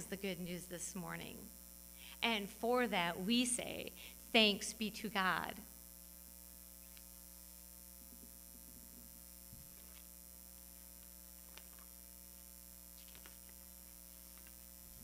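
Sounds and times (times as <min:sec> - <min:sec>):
steady electrical hum: 0:00.0 - 0:15.0
faint ticks: 0:12.9 - 0:14.8.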